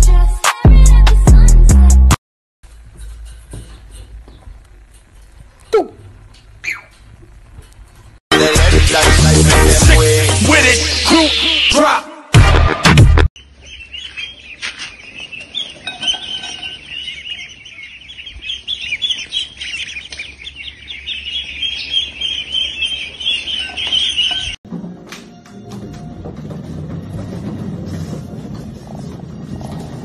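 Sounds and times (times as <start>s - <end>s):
small birds chirping: 6.5s - 7.8s, 13.4s - 24.6s.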